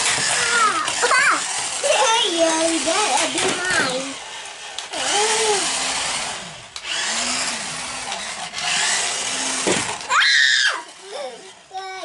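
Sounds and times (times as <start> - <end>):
small electric motors whirring: 0.0 - 12.0.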